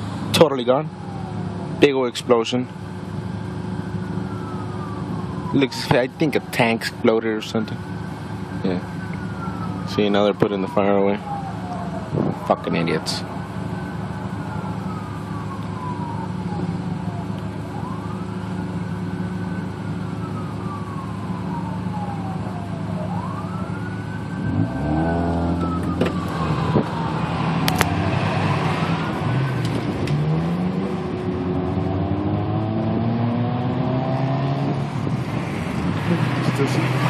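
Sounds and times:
siren wailing: 0.6s - 1.8s, 3.7s - 37.0s
engines idling: 1.0s - 25.0s
vehicle accelerating: 11.3s - 37.0s.

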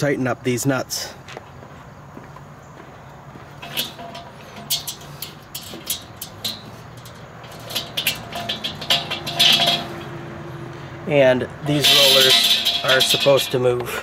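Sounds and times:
metal scrape: 3.6s - 10.9s, 11.6s - 14.0s.

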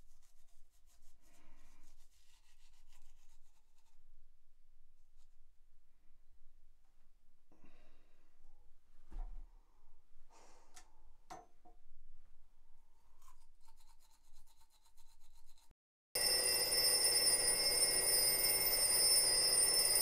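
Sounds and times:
toothbrush scrubbing: 0.0s - 4.1s, 13.0s - 15.7s.

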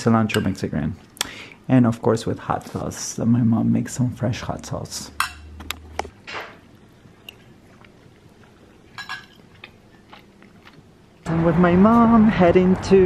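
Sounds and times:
soft chewing: 7.1s - 11.2s.

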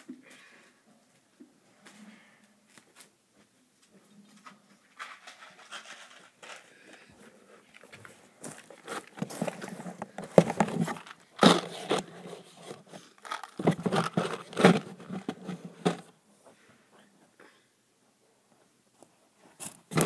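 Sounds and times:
cardboard box rustling and scraping: 8.6s - 16.1s.

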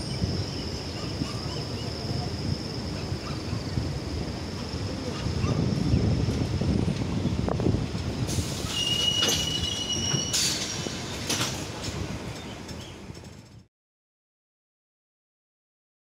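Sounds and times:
train wheels rumbling on rails: 0.0s - 13.7s
high thin wheel squeal: 8.4s - 11.1s.

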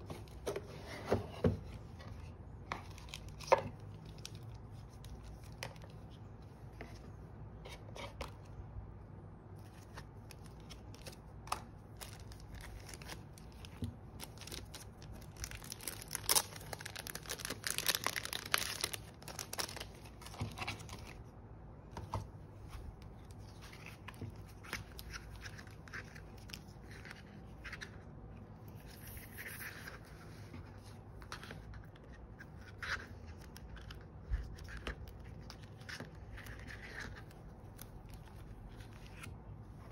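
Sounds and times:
plastic sleeves crinkling: 9.6s - 21.2s.

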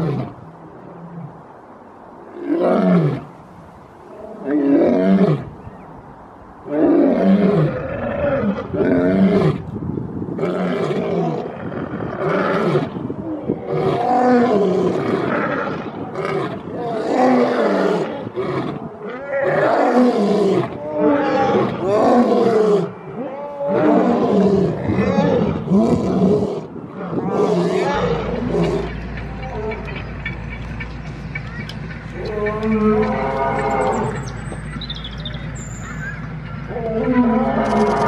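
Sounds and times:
lions roaring: 13.5s - 29.9s, 36.7s - 38.0s.

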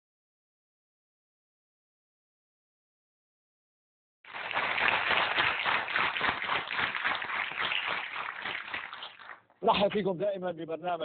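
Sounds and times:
audience applauding: 4.3s - 9.4s.

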